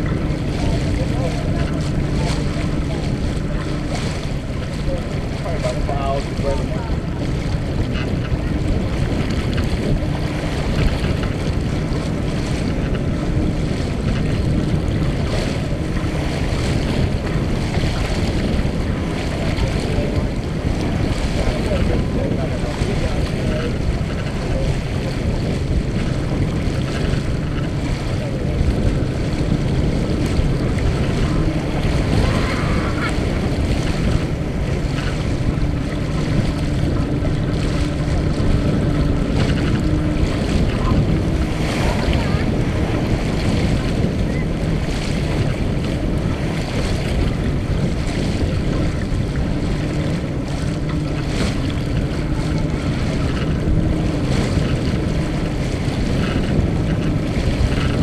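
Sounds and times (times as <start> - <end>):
water splashing along hull: 0.0 - 58.0
wind buffeting microphone: 0.0 - 58.0.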